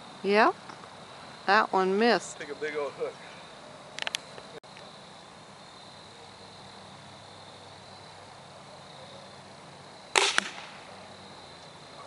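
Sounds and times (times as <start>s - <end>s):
faint high insect tone: 0.0s - 12.0s
sharp loud crack: 10.1s - 10.9s
arrow striking hay bale: 10.2s - 10.8s.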